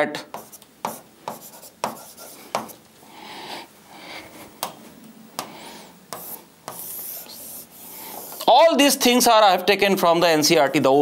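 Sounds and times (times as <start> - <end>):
stylus scratching on glass: 6.1 - 8.5.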